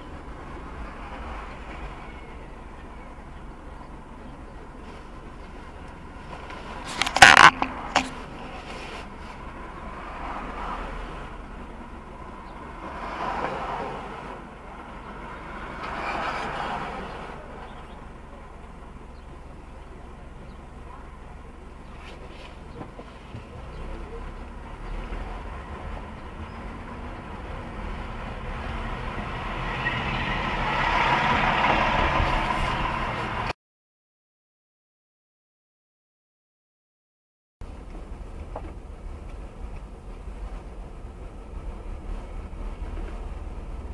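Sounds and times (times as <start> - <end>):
car engine rumble: 0.0 - 33.5, 37.6 - 43.9
vehicles passing: 0.0 - 33.5, 37.6 - 43.9
road noise: 0.0 - 33.6, 37.6 - 43.9
steady low rumble: 37.6 - 43.9.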